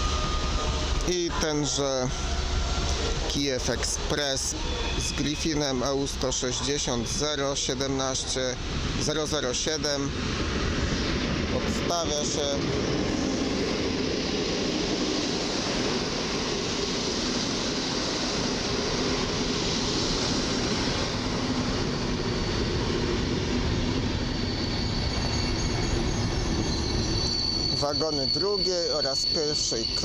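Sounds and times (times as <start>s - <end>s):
high wheel squeal: 0.0s - 7.8s, 17.4s - 30.0s
train wheels rumbling on rails: 0.0s - 30.0s.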